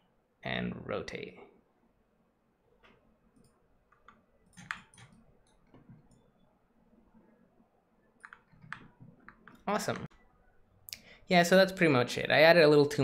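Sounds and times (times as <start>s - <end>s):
mouse and keyboard clicks: 2.8s - 6.3s, 8.2s - 10.1s.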